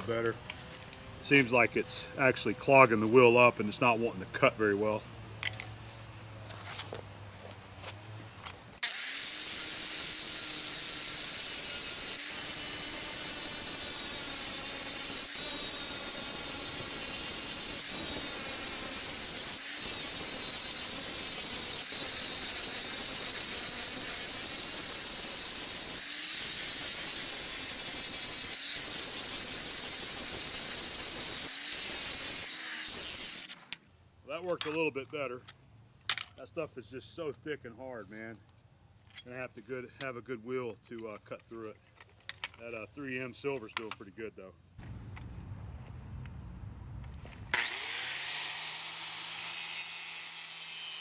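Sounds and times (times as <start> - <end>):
angle grinder grinding steel: 8.8 - 33.8, 47.5 - 51.0.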